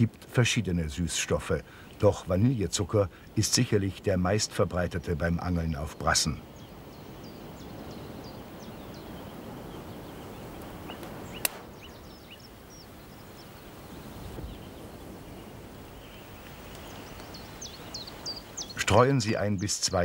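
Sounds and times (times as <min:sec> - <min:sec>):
small birds chirping: 0:00.0 - 0:20.0
steady background hiss: 0:00.0 - 0:20.0
sharp click: 0:11.4 - 0:11.6.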